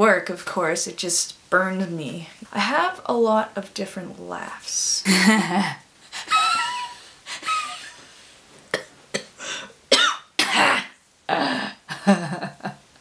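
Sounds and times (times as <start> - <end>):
woman laughing: 5.0 - 8.0, 11.9 - 12.8.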